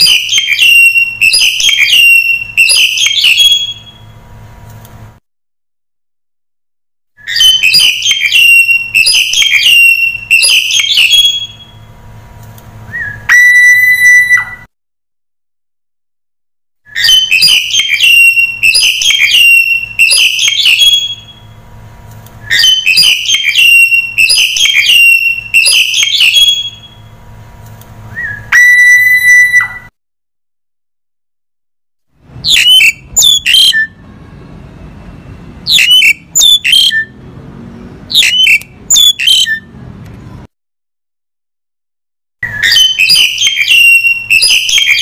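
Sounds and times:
starling calling: 0.0 - 4.1, 7.2 - 11.9, 12.9 - 14.7, 16.9 - 21.6, 22.4 - 27.0, 28.1 - 29.9, 32.4 - 34.0, 35.6 - 37.2, 38.1 - 39.7, 42.4 - 45.0.

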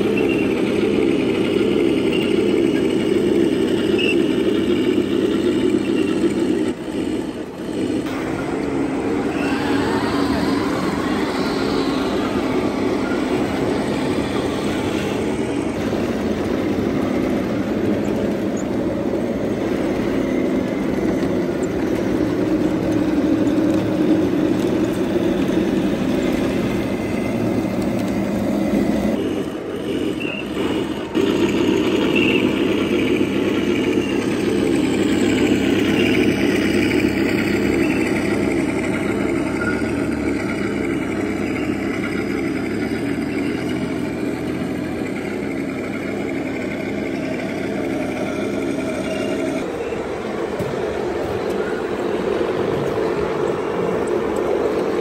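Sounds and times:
model tank engine rumble: 0.0 - 55.0.

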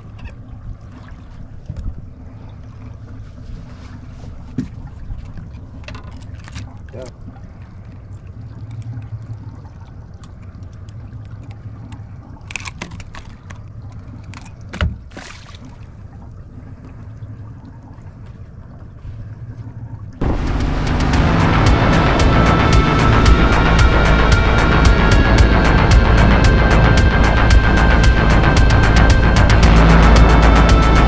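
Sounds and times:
boat engine low rumble: 0.0 - 31.0
small clicks and splashes: 4.6 - 20.2
loud music: 20.2 - 31.0.

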